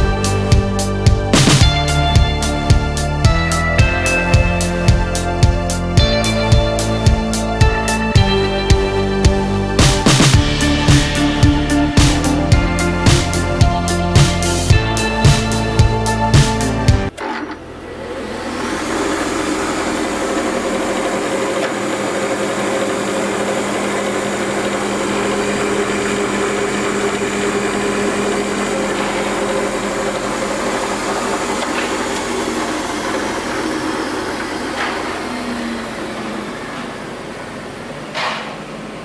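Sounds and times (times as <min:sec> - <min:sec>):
moulder motor humming with whine: 0:17.1 - 0:39.0.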